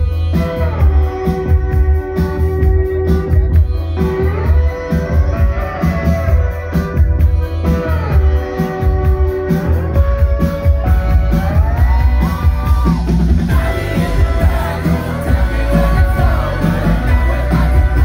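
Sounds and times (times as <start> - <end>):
electric guitar: 0.0 - 18.0
keyboard: 0.0 - 18.0
person singing: 12.8 - 18.0.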